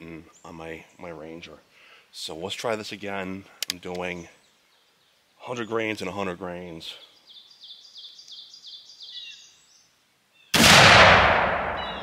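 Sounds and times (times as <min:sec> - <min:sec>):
bird chirping: 0:00.0 - 0:10.6, 0:11.7 - 0:12.0
shotgun blast: 0:10.6 - 0:12.0.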